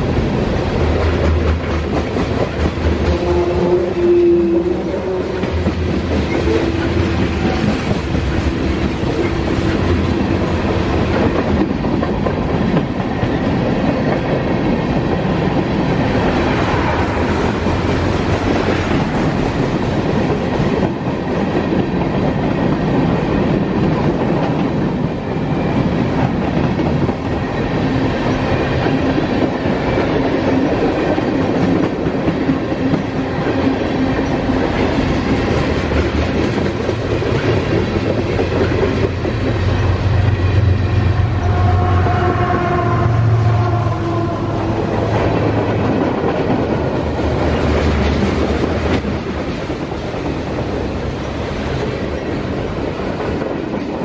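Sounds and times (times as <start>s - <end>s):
train wheels clicking over rail joints: 0.0s - 41.1s
freight train rumbling past: 0.0s - 54.0s.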